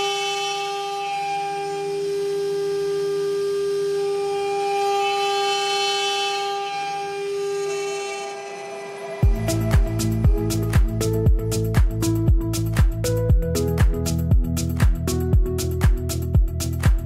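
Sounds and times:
router spindle whining: 0.0s - 12.8s.

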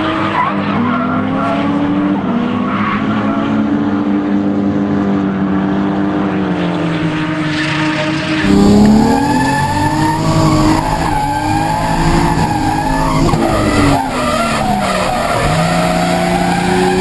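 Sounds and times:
car engine at high revs: 0.0s - 17.0s
tyres squealing: 8.4s - 17.0s.

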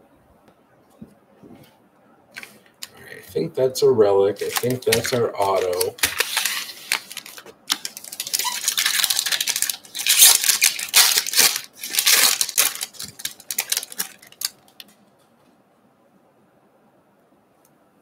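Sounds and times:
foil wrapper tearing and crinkling: 4.4s - 14.9s.

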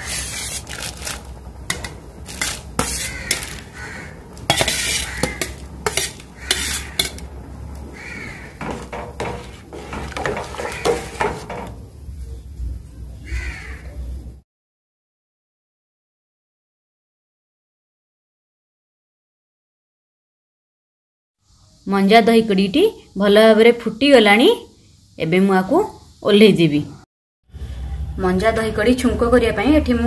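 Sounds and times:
steel spoon clinking on pot: 4.5s - 7.3s.

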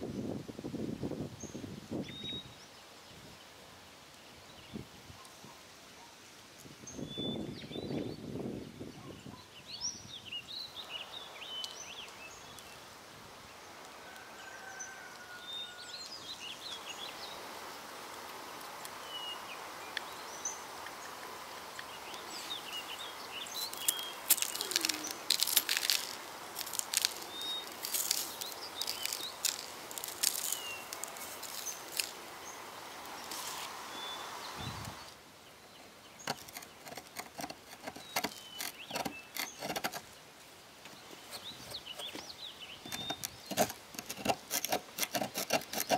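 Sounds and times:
steady background hiss: 0.0s - 45.9s
birds chirping: 18.6s - 45.9s.

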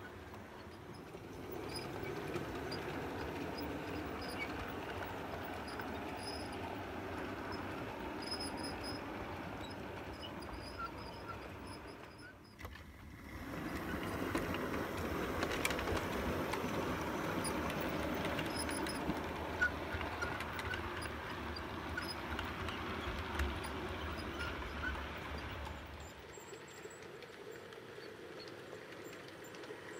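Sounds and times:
model train motor whirring: 0.0s - 29.9s
wheels rattling along rails: 0.0s - 29.9s
faint high squeaks: 7.5s - 12.8s.

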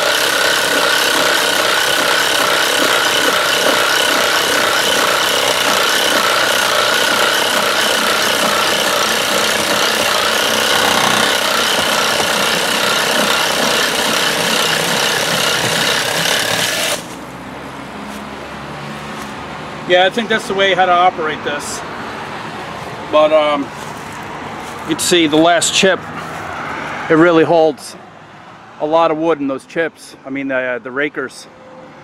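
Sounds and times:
reciprocating saw cutting branch: 0.0s - 17.2s.

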